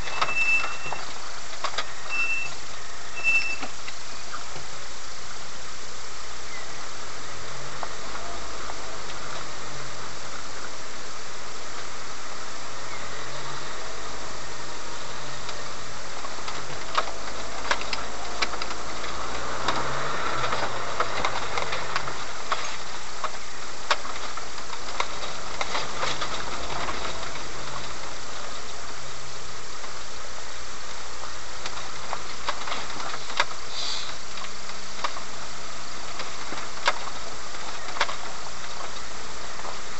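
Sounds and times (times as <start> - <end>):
brief squeak: 0.0 - 1.1, 1.8 - 3.8
engine running at low speed: 0.0 - 39.9
vehicle knocks and rattles: 15.4 - 29.0, 31.0 - 39.9.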